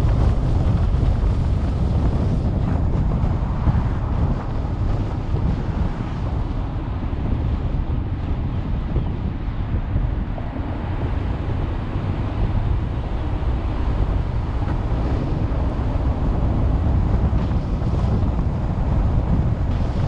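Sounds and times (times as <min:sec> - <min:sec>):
car road and wind noise: 0:00.0 - 0:20.0.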